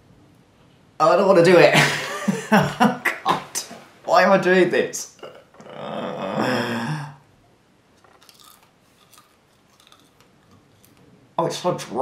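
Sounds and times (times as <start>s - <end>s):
man groaning: 5.2s - 7.2s
crunchy chewing: 8.0s - 11.1s.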